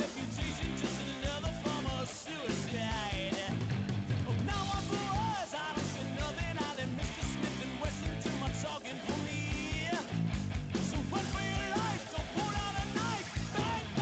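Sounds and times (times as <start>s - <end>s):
rock song with singing and band: 0.0s - 14.0s.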